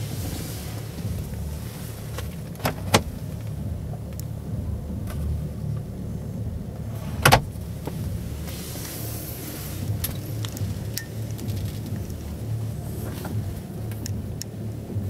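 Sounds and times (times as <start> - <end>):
low rumble of hall background: 0.0 - 15.0.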